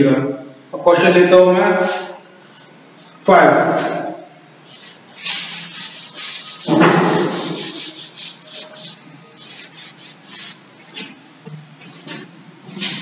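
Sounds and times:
chalkboard being wiped: 1.8 - 4.0, 4.7 - 11.2, 11.8 - 13.0.

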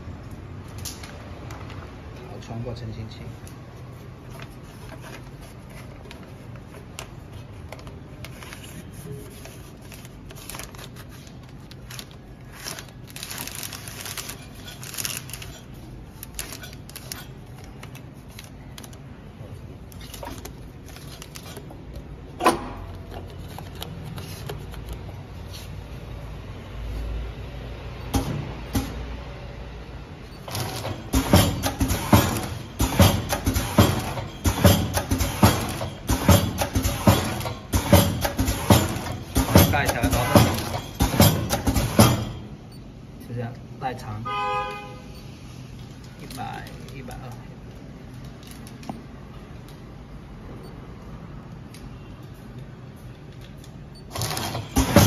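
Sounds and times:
plastic film crinkling: 4.0 - 22.0
handling clicks and knocks: 30.5 - 42.4.

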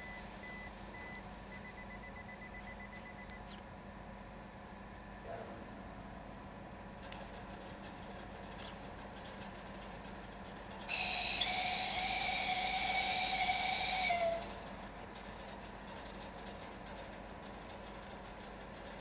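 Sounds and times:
locomotive air whistle blast: 10.9 - 14.6.

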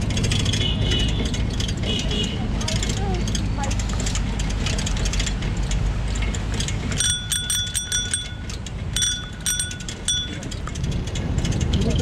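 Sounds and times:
low wind: 0.0 - 12.0
road rumble: 0.0 - 12.0
bicycle bell ringing: 7.0 - 10.7.

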